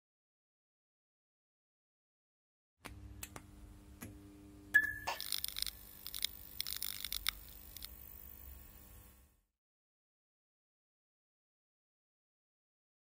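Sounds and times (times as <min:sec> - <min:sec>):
sharp clicks: 0:04.8 - 0:08.0.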